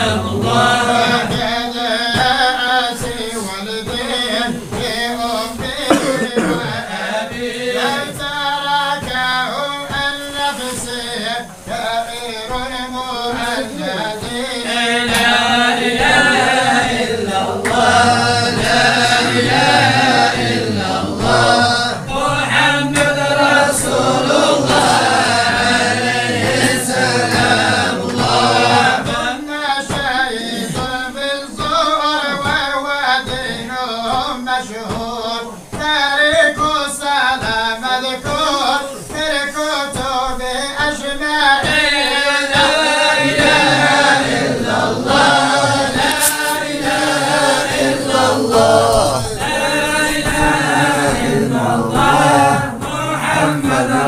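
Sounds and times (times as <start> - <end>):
group chanting devotional song: 0.0 - 54.0.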